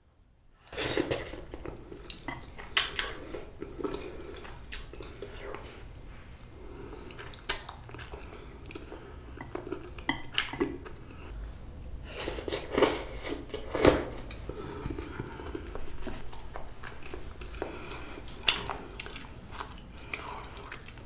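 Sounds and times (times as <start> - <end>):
person slurping noodles: 0.7 - 1.5
wet chewing: 0.8 - 6.0, 6.7 - 11.4, 12.0 - 21.0.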